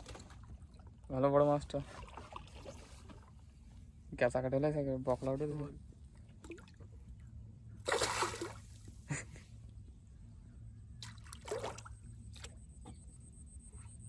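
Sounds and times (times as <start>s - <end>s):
water splashing against boat: 0.0s - 3.7s, 7.8s - 9.0s, 11.0s - 12.9s.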